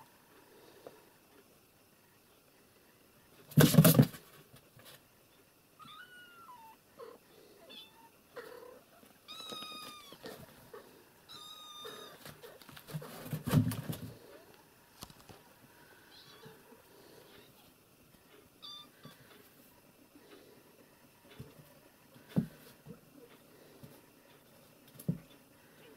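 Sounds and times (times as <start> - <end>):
rustling and scrabbling: 3.5 - 5.0, 12.2 - 14.4
cats meowing: 5.8 - 12.5, 16.0 - 17.7, 18.6 - 19.2.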